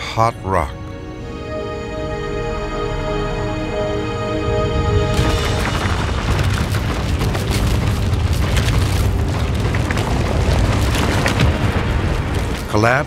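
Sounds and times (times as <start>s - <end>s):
deep rumble of tumbling rock: 5.2s - 13.0s
rock crackles and knocks: 5.4s - 13.0s.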